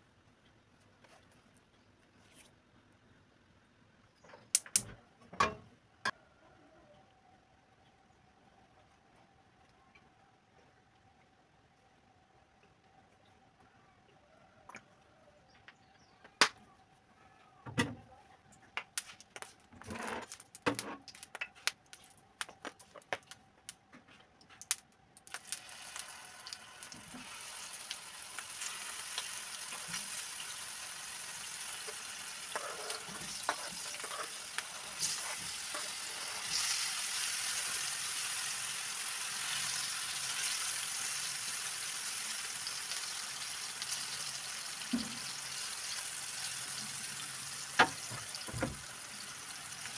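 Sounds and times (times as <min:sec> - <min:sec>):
sharp clicks and pops: 0:04.2 - 0:05.0, 0:18.7 - 0:25.6
slices frying in hot oil: 0:19.0 - 0:23.4, 0:24.6 - 0:49.9
fork stirring in pan: 0:31.9 - 0:36.8.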